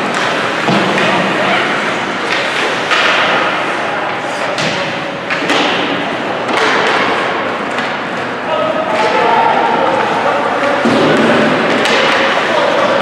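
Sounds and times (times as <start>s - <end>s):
puck and sticks knocking: 0.0s - 1.3s, 2.2s - 3.6s, 10.0s - 12.4s
rink and crowd noise: 0.0s - 13.0s.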